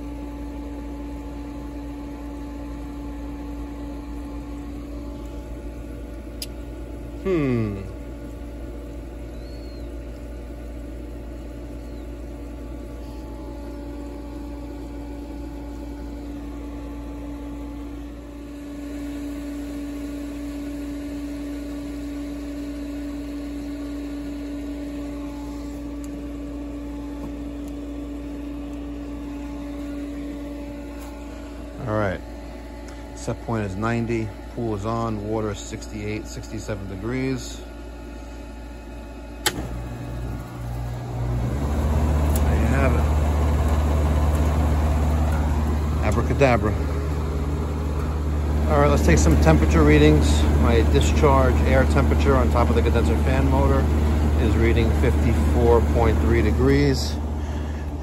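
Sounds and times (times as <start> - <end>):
pool equipment hum: 0.0 - 58.0
falling chirp: 9.3 - 10.0.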